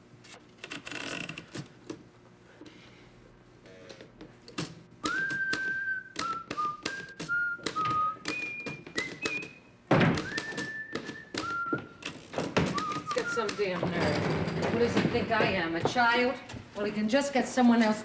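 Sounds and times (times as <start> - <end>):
person whistling a tune: 5.0 - 12.0, 12.6 - 13.8
typewriter keys clacking: 10.2 - 14.2.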